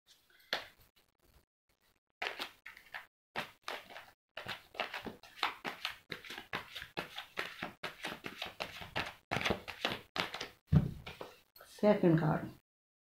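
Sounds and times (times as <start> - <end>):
cards being shuffled: 2.2 - 11.3.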